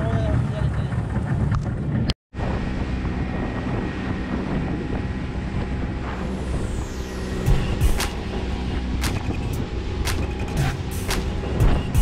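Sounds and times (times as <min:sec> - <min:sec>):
boat motor running: 0:00.0 - 0:12.0
wind buffeting microphone: 0:00.0 - 0:12.0.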